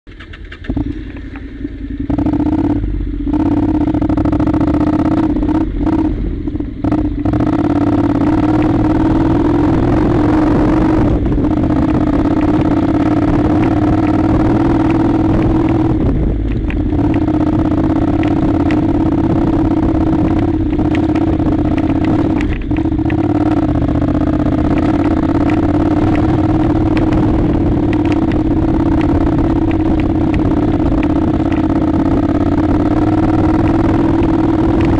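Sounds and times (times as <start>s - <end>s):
clicks and clatter of stones: 0.1s - 1.5s
motorcycle engine running: 0.1s - 34.9s.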